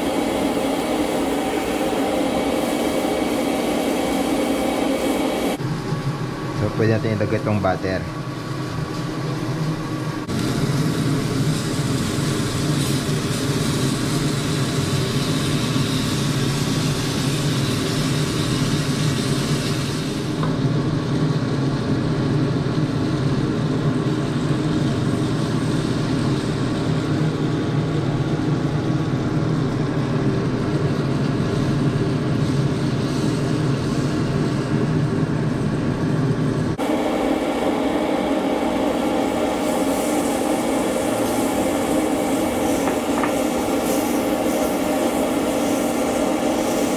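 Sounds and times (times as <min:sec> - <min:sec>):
steak sizzling in a pan: 0:10.3 - 0:20.3, 0:39.2 - 0:46.9.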